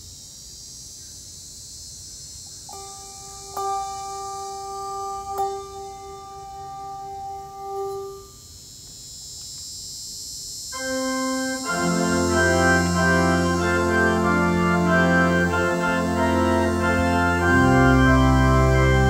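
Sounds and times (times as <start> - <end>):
steady background hiss: 0.0 - 19.0
organ chords: 2.6 - 8.5, 10.7 - 19.0.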